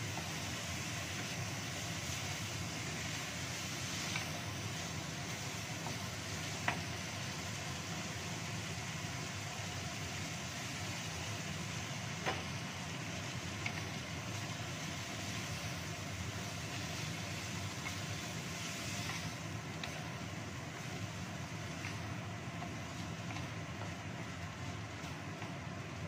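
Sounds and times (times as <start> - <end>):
food sizzling in a wok: 0.0 - 26.0.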